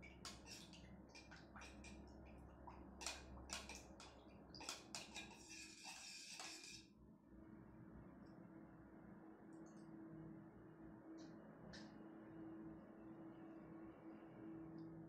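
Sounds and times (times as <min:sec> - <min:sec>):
faint background hum: 0:00.0 - 0:15.0.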